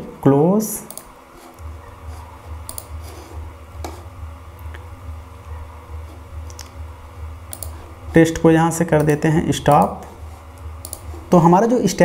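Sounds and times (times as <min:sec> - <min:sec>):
computer mouse clicks: 0:00.9 - 0:01.1, 0:02.6 - 0:03.0, 0:07.5 - 0:07.8, 0:09.0 - 0:09.9, 0:10.8 - 0:11.1
low pulsing hum: 0:01.1 - 0:12.0.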